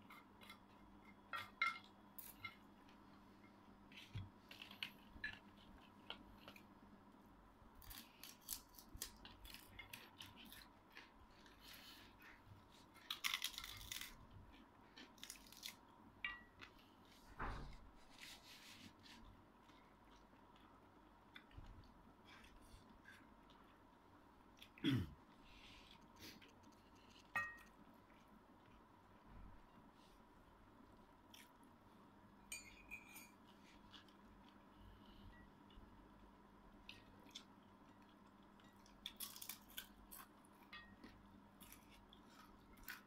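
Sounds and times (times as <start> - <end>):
food crunching while chewed: 7.8 - 15.9, 36.8 - 43.0.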